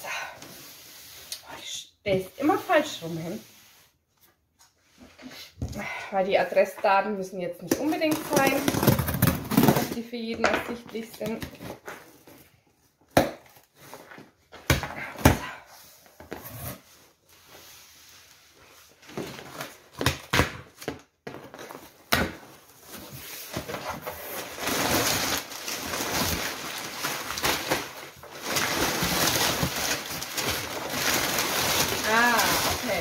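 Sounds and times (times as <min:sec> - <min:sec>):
packing paper rustling: 0:21.3 - 0:33.0.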